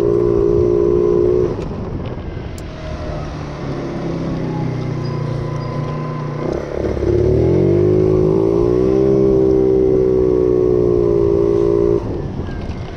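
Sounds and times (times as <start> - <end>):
scooter engine pulling away: 2.8 - 12.7.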